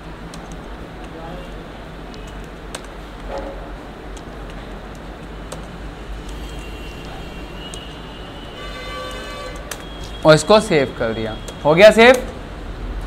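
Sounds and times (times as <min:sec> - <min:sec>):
keyboard key clicks: 0:00.3 - 0:01.2, 0:02.1 - 0:03.5, 0:04.1 - 0:08.0, 0:11.4 - 0:12.4.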